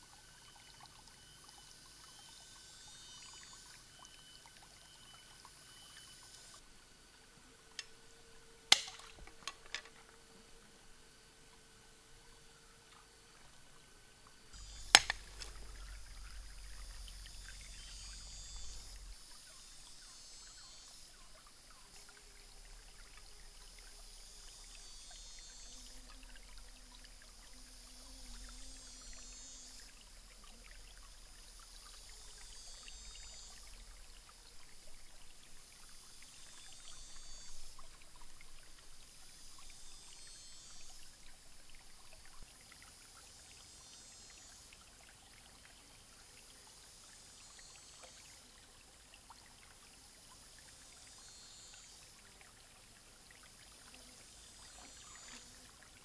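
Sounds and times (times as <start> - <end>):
stream trickling over stones: 0.0 - 56.0.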